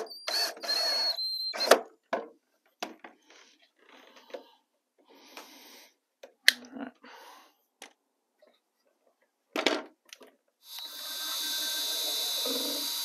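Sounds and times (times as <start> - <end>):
cordless drill driving a screw: 0.1 - 1.8, 10.6 - 13.0.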